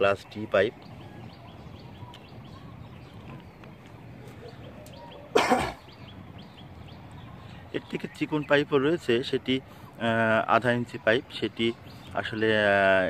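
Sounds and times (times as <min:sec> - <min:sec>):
man coughing: 0:05.3 - 0:05.8.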